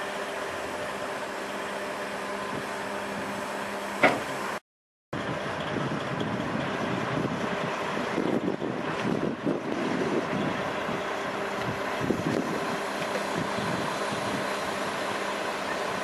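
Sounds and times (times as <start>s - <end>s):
diesel engine idling: 0.0s - 4.6s, 5.2s - 16.0s
wind buffeting microphone: 5.2s - 14.5s.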